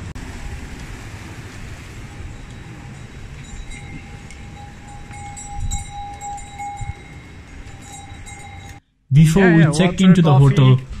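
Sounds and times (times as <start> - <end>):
wind buffeting microphone: 0.0 - 8.8
thin ringing tone: 2.0 - 8.8.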